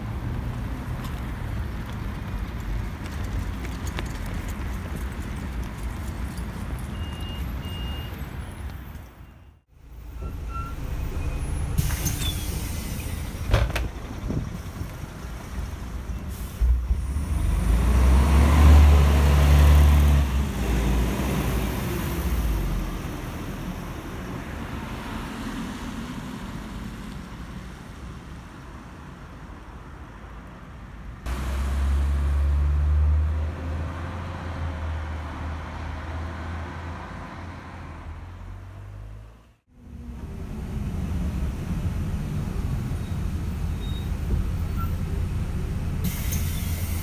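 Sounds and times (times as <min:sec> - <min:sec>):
bus diesel engine pulling away: 0:09.8 - 0:27.8, 0:31.2 - 0:47.0.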